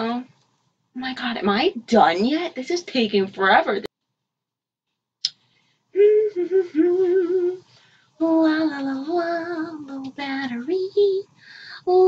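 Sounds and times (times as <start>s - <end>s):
woman singing wordless tune: 6.0s - 12.0s.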